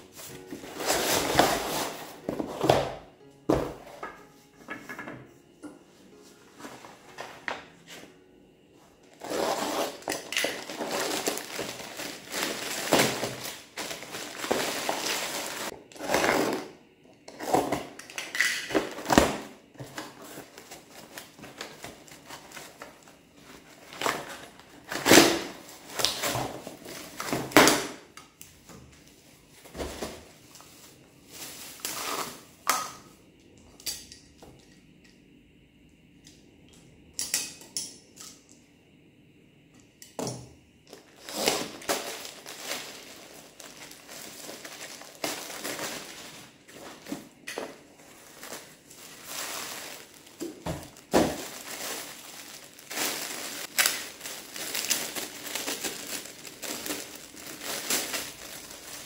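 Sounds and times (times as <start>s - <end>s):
cardboard and plastic tearing: 0.4s - 2.9s, 9.2s - 16.7s, 23.9s - 27.8s, 41.0s - 59.0s.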